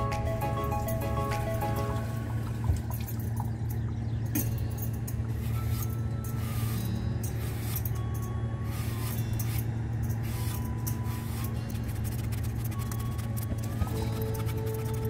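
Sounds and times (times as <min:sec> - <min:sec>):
low hum: 0:00.0 - 0:15.0
peeler scraping apple skin: 0:11.2 - 0:15.0.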